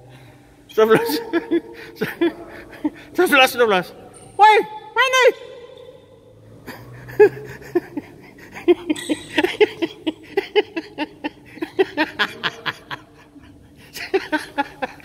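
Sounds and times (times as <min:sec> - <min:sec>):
person laughing: 0:00.9 - 0:03.1, 0:06.7 - 0:15.0.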